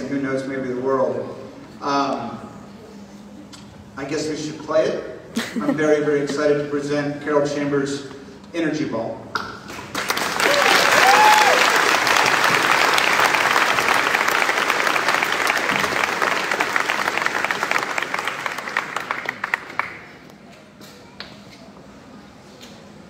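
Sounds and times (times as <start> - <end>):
audience applauding: 9.9 - 20.2
audience cheering: 10.1 - 19.3.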